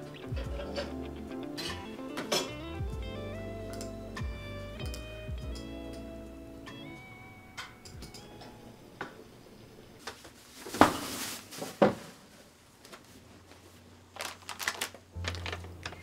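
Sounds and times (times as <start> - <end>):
low steady hum: 0.0 - 10.5
rustling: 10.0 - 16.0.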